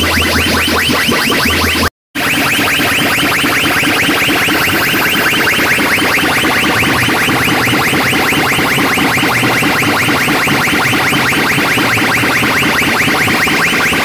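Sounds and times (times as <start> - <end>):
electronic chirping: 0.0 - 14.0.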